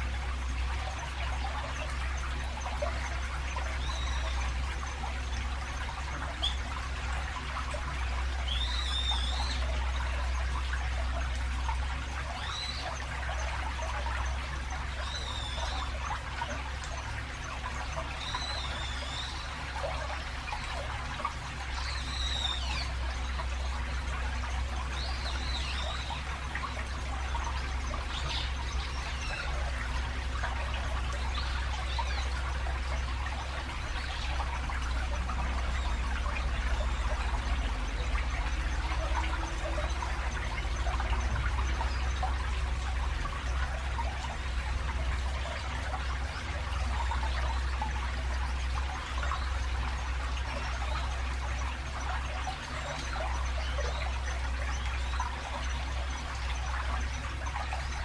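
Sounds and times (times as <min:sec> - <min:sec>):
stream trickling: 0:00.0 - 0:58.0
traffic rumble: 0:00.0 - 0:58.0
bird calling: 0:00.9 - 0:05.3, 0:08.2 - 0:11.2, 0:12.2 - 0:16.2, 0:18.0 - 0:20.8.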